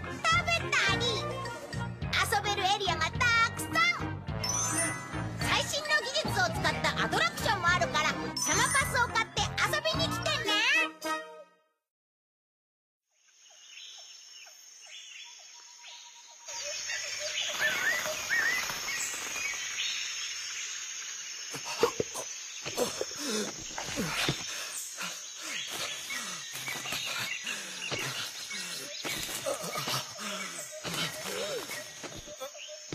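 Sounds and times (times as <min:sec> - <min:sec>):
insects droning: 0:13.1 - 0:32.9
birds chirping: 0:13.5 - 0:32.9.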